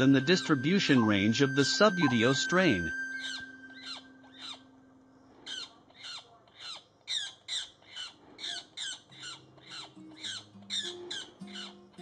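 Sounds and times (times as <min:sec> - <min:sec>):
magpie harsh distress squawks: 0:02.0 - 0:04.7.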